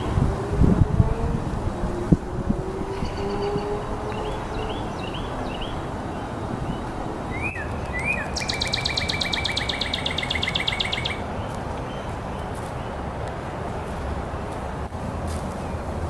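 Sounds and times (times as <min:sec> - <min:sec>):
songbird chirps and trill: 0:02.9 - 0:13.1.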